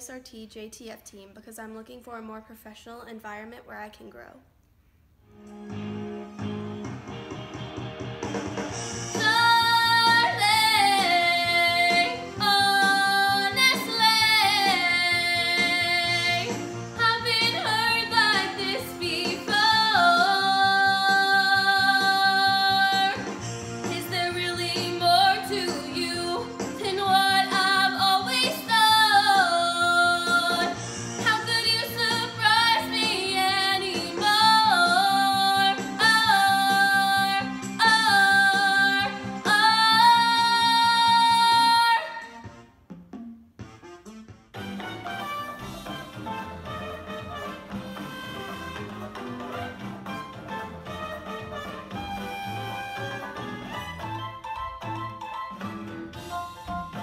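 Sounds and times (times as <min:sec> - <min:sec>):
instrumental accompaniment: 0:05.2 - 0:57.0
girl singing: 0:09.2 - 0:23.2, 0:23.9 - 0:42.3.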